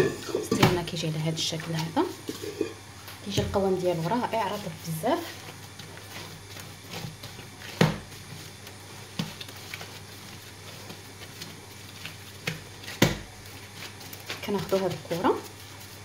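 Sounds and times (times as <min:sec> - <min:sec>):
hands kneading dough: 0:00.0 - 0:16.0
steady low hum: 0:00.0 - 0:16.0
dough knocking on counter: 0:12.5 - 0:13.3.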